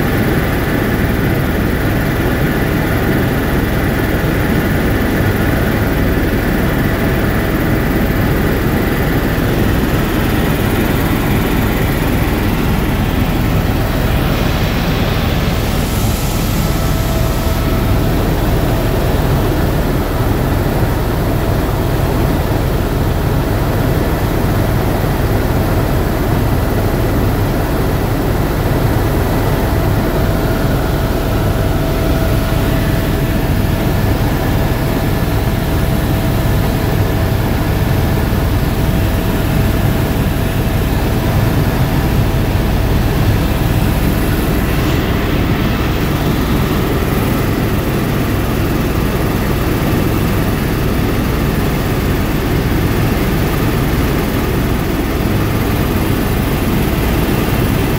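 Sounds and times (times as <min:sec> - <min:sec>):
faint steady whine: 0:00.0 - 0:57.9
helicopter rotor and engine drone: 0:00.0 - 0:57.9
rushing air: 0:10.1 - 0:20.5, 0:41.6 - 0:47.6.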